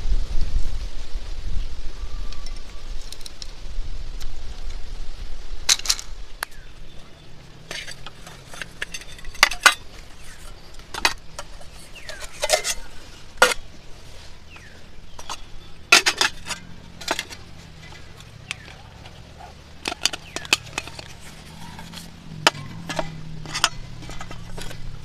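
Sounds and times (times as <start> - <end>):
cookware and utensils clinking: 7.6 - 13.6, 15.2 - 25.0.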